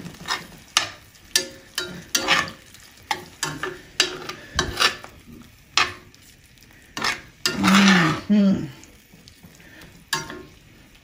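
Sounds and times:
metal spoon scraping a pan: 0:00.0 - 0:06.2, 0:06.8 - 0:08.3, 0:10.1 - 0:10.6.

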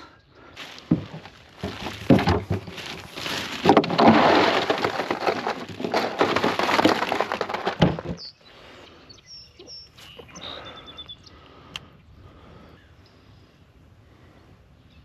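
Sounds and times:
birds chirping: 0:00.0 - 0:01.9, 0:08.0 - 0:15.0
plastic bag crinkling: 0:00.6 - 0:08.2.

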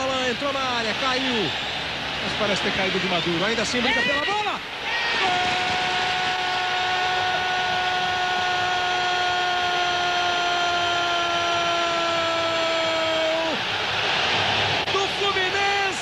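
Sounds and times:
stadium crowd noise: 0:00.0 - 0:16.0
commentator's long goal shout: 0:03.8 - 0:13.6.

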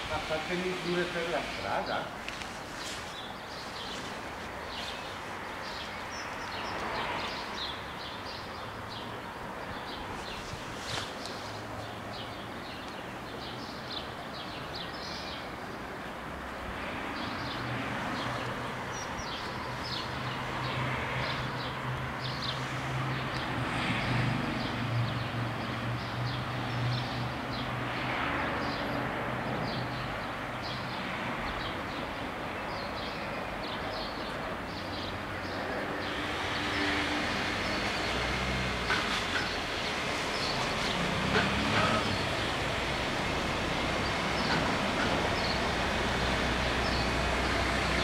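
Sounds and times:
outdoor hiss: 0:00.0 - 0:06.0
small birds chirping: 0:00.0 - 0:16.0, 0:17.2 - 0:27.7, 0:29.7 - 0:48.0
diesel railcar humming: 0:36.2 - 0:48.0.

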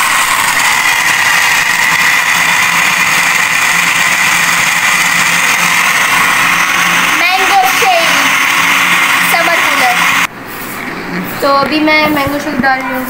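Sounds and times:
blender churning ice: 0:00.0 - 0:10.3.

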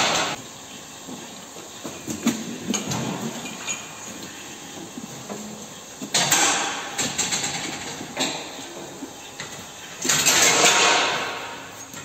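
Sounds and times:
clanks and knocks of steel crate: 0:10.0 - 0:11.7.

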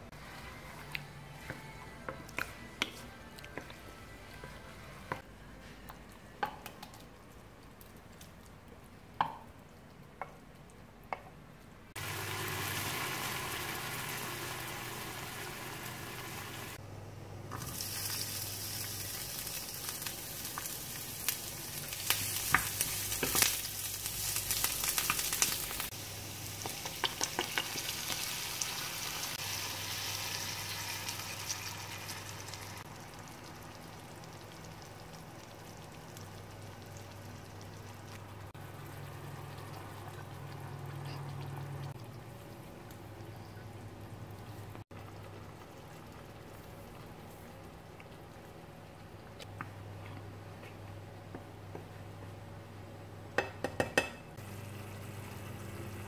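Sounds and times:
onions sizzling in hot oil: 0:12.0 - 0:16.8, 0:17.5 - 0:37.9.

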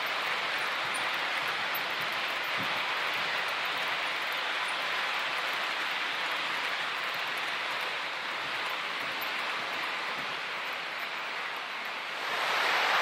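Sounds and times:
model train wheels rolling: 0:00.0 - 0:13.0.

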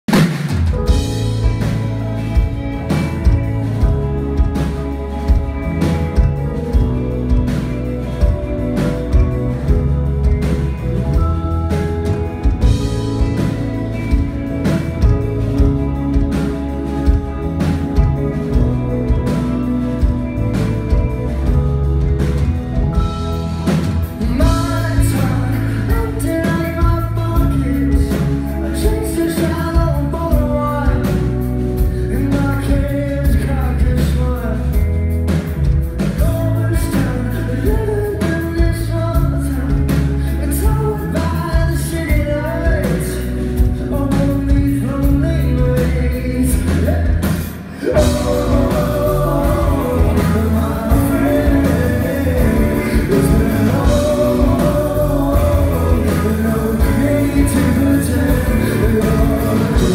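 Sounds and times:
live rock band playing: 0:00.0 - 0:59.9
person singing: 0:23.5 - 0:35.0, 0:36.0 - 0:59.9.

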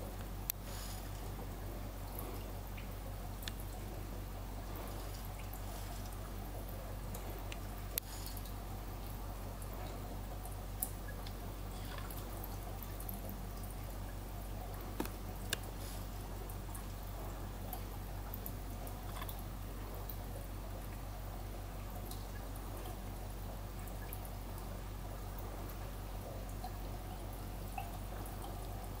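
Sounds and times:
steady low hum: 0:00.0 - 0:29.0
water trickling and dripping: 0:00.0 - 0:29.0.

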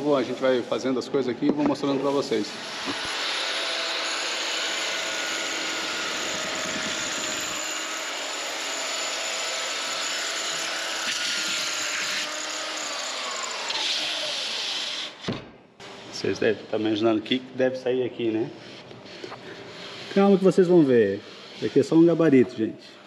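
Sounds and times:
circular saw cutting: 0:01.8 - 0:15.2, 0:19.8 - 0:22.7.

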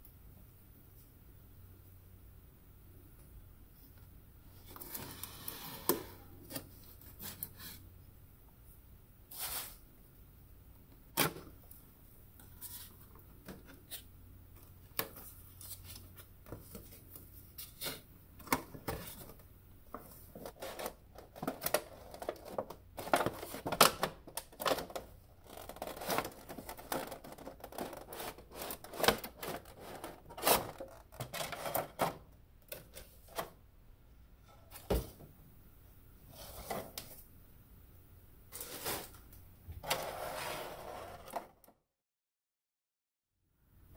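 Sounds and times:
plastic film crinkling: 0:20.3 - 0:31.8.

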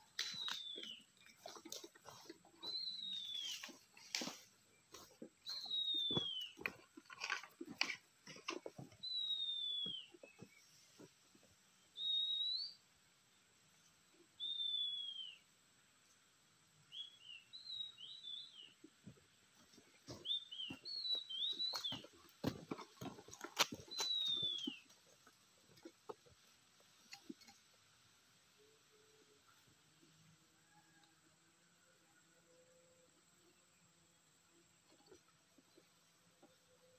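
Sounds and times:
leaves and twigs crackling underfoot: 0:00.0 - 0:11.2, 0:19.5 - 0:28.0
bird whistled calls: 0:00.2 - 0:01.0, 0:02.6 - 0:03.7, 0:09.0 - 0:10.1, 0:12.0 - 0:12.8, 0:14.4 - 0:15.4, 0:23.9 - 0:24.8.

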